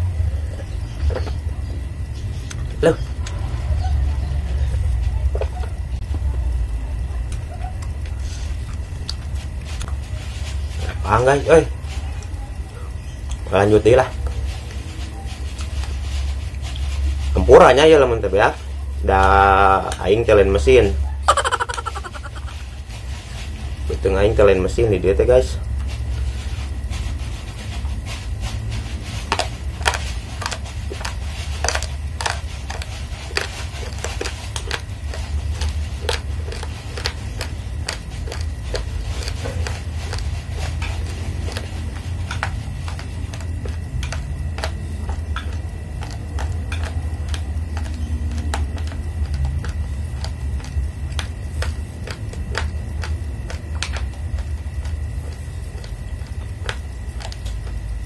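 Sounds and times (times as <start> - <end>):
steady low hum: 0.0 - 58.0.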